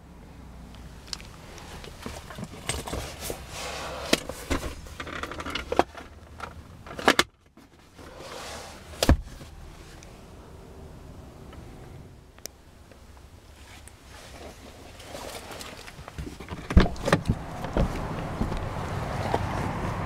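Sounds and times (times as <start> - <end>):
rustling of car seat: 1.3 - 6.4, 7.6 - 10.1, 13.5 - 20.0.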